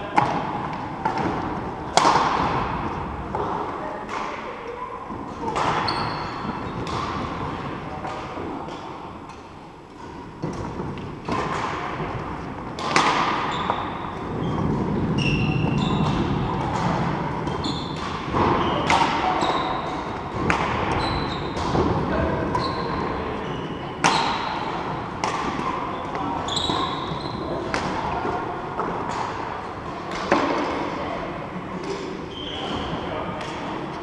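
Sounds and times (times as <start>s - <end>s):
rackets striking shuttlecock: 0.1s - 3.5s, 5.5s - 7.4s, 12.7s - 14.4s, 15.9s - 23.0s, 24.0s - 27.1s.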